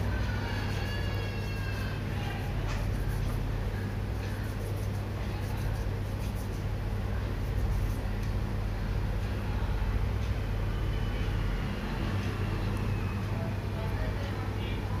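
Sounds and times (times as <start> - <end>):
steady low hum: 0.0 - 15.0
dough rustling and tapping: 0.7 - 8.4.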